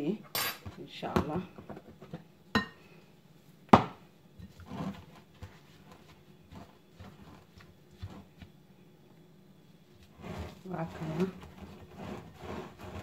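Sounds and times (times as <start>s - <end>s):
spatula scraping dough in bowl: 4.4s - 8.6s, 10.0s - 13.0s.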